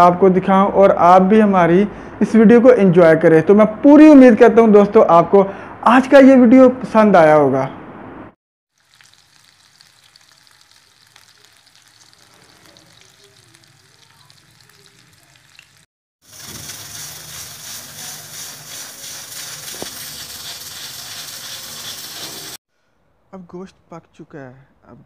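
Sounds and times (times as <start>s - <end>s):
meat sizzling in hot oil: 8.7s - 22.6s
pressure cooker steam hiss: 16.2s - 22.6s.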